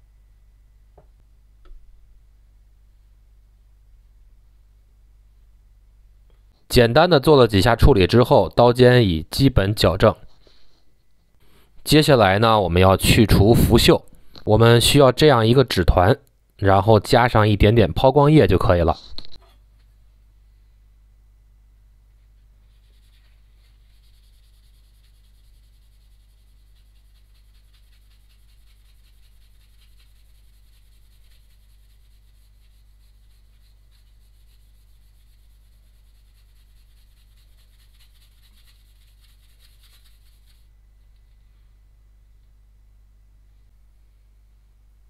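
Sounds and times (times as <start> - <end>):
paper rubbing on steel blade: 22.7 - 40.7.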